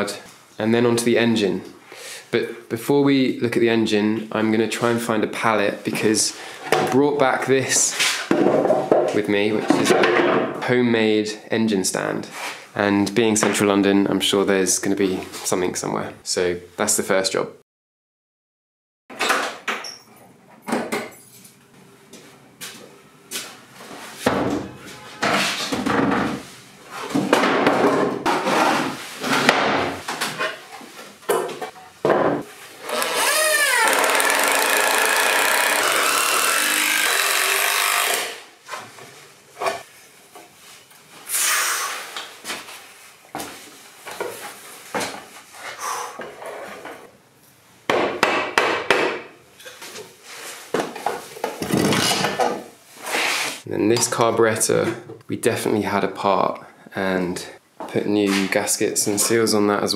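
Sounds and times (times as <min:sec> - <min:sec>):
wooden boards knocking and clattering: 0:08.3 - 0:10.6, 0:24.3 - 0:26.4, 0:27.1 - 0:30.4, 0:31.3 - 0:32.5, 0:50.8 - 0:52.6
power tool running: 0:32.8 - 0:38.4.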